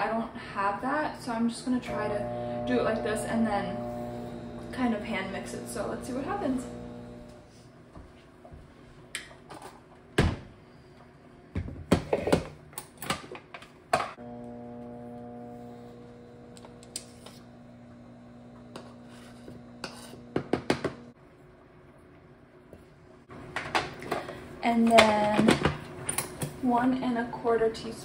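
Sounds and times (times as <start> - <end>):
electrical hum: 1.6 - 7.6, 14.2 - 28.0.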